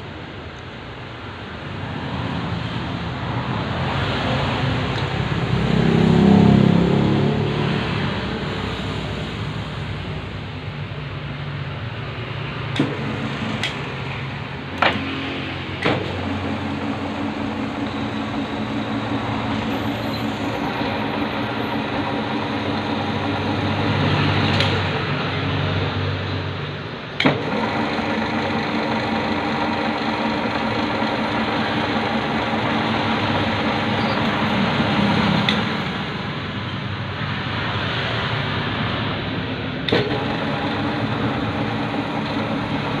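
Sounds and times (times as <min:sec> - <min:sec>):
pitched machine hum: 0:12.3 - 0:25.3, 0:27.2 - 0:36.5, 0:39.9 - 0:43.0
metal lathe running: 0:12.7 - 0:25.1, 0:27.2 - 0:36.3, 0:39.9 - 0:43.0.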